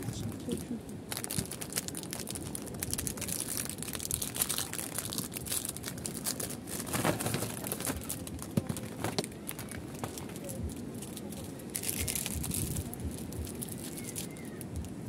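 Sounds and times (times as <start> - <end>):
plastic wrapper crinkling: 0.5 - 15.0.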